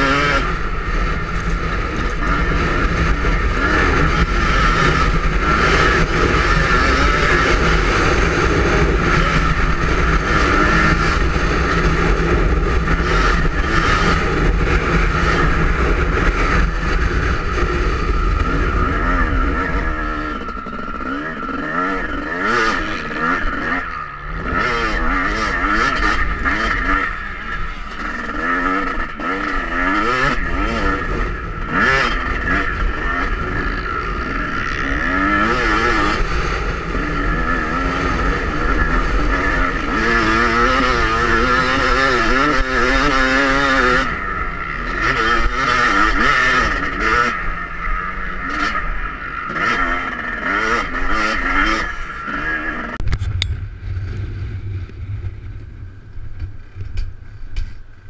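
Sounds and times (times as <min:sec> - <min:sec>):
motocross engine revving: 0:00.0 - 0:57.8
wind rumbling on microphone: 0:53.0 - 0:58.0.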